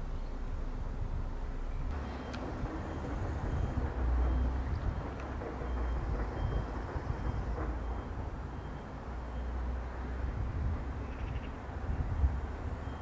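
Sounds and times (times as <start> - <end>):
distant electric train rumble: 0.0 - 13.0.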